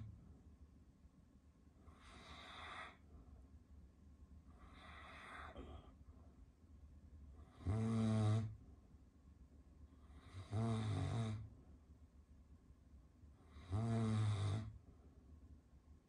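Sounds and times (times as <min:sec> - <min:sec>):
quiet breathing: 0:01.7 - 0:03.8, 0:04.4 - 0:09.0, 0:09.8 - 0:11.8
dog snoring: 0:01.9 - 0:03.0, 0:04.6 - 0:05.9, 0:07.4 - 0:08.6, 0:10.0 - 0:11.5, 0:13.4 - 0:14.8.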